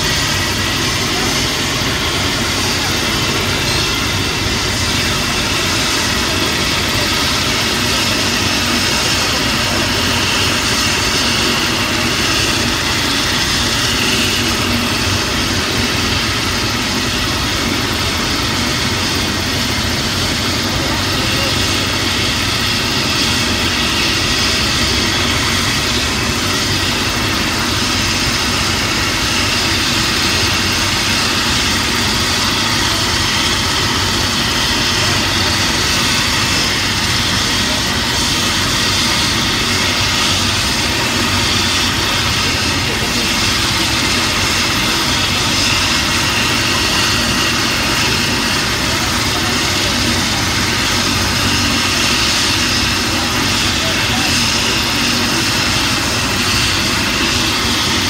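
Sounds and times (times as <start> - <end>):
helicopter turbine engine running: 0.0 - 58.0.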